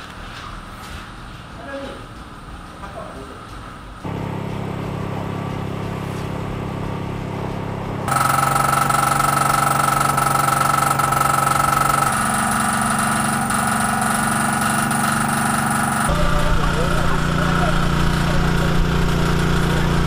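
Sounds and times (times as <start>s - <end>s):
small engine humming: 8.0s - 20.0s
strong high tone: 15.8s - 18.0s.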